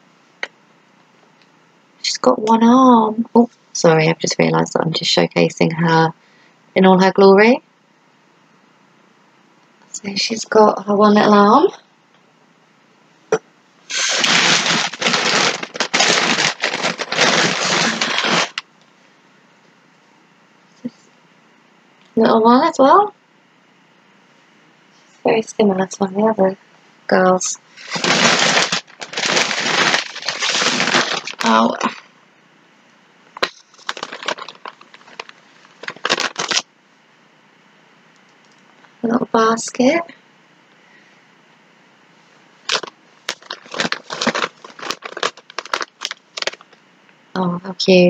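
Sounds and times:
packaging crinkling and rustling: 0:13.9 - 0:18.6, 0:27.8 - 0:32.1, 0:33.4 - 0:36.7, 0:42.6 - 0:46.8.

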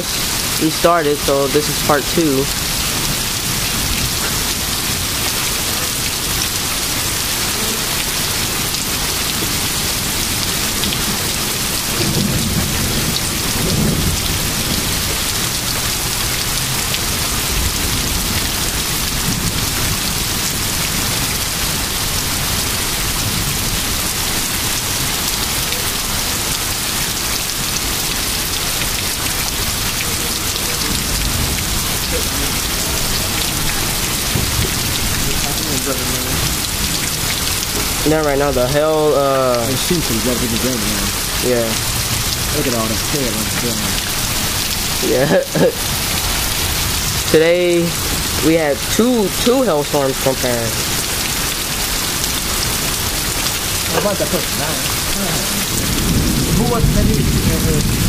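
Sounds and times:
heavy rain pouring: 0:00.0 - 0:58.0
low rumble of thunder: 0:09.4 - 0:24.4, 0:30.6 - 0:38.1, 0:54.2 - 0:58.0.

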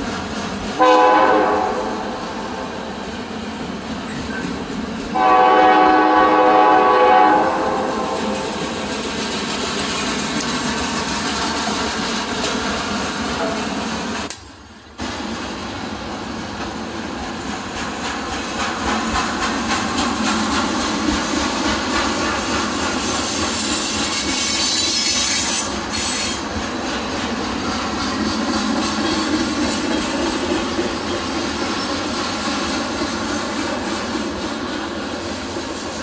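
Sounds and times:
train wheels rumbling on rails: 0:00.0 - 0:36.0
thin wheel squeal: 0:23.7 - 0:26.4.

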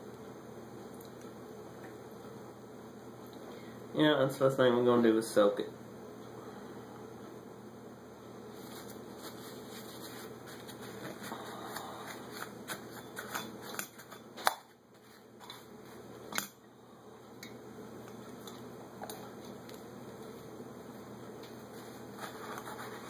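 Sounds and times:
steady hum: 0:00.0 - 0:23.0
hands rustling on plastic sheet: 0:08.5 - 0:14.2.

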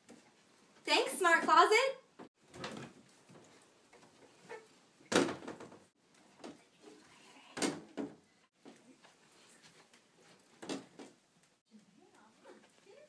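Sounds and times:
closet doors knocking and thudding: 0:05.1 - 0:05.9, 0:07.6 - 0:08.2.

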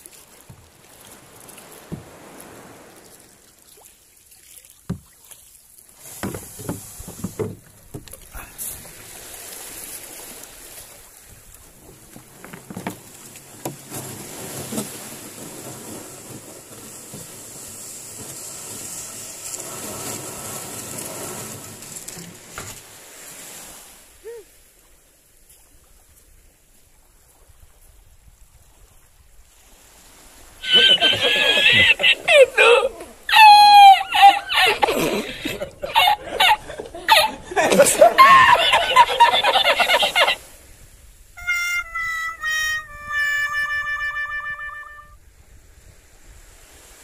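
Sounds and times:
surf washing in: 0:00.0 - 0:04.2, 0:05.6 - 0:25.3, 0:28.4 - 0:47.0
boat hull scraping over sand: 0:05.9 - 0:23.9
knocks on boat hull: 0:06.2 - 0:08.1.

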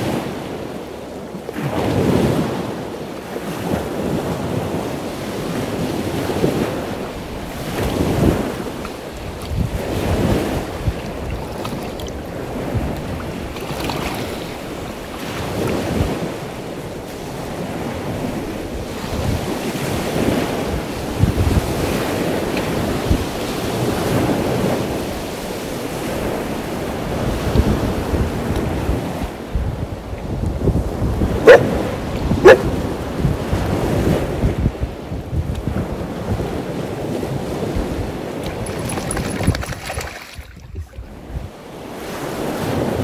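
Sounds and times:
wind buffeting microphone: 0:03.4 - 0:43.0
sea water lapping: 0:05.8 - 0:28.0, 0:30.9 - 0:33.7, 0:37.0 - 0:43.0.

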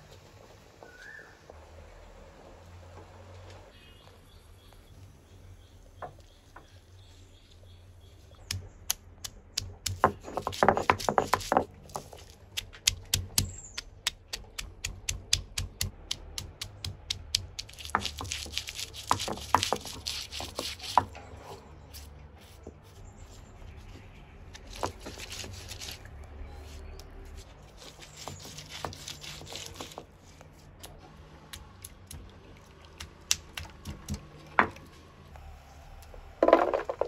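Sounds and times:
stone roller crushing chillies: 0:09.5 - 0:21.2, 0:24.6 - 0:26.1, 0:27.7 - 0:32.4.

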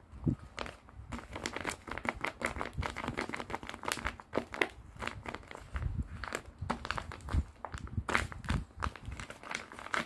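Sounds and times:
taped paper crinkling: 0:00.5 - 0:10.0.

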